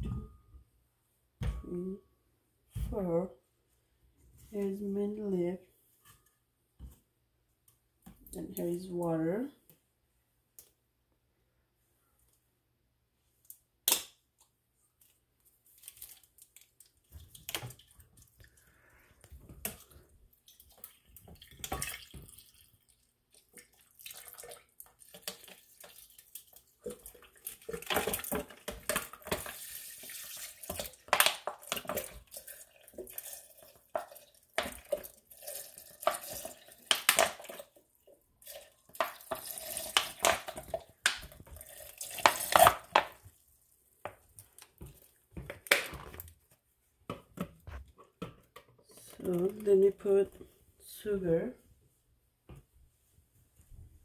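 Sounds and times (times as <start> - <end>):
water pouring into blender jar: 20.5 - 28.3, 29.0 - 37.7, 38.4 - 42.9
plastic bottles clicking and knocking: 24.9 - 37.8, 38.4 - 43.2.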